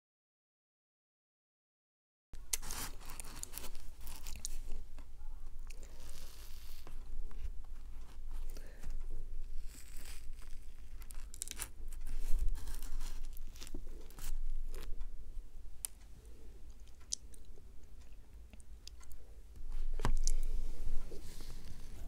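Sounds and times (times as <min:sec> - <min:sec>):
pastry crust crackling and tearing: 0:02.5 - 0:15.0.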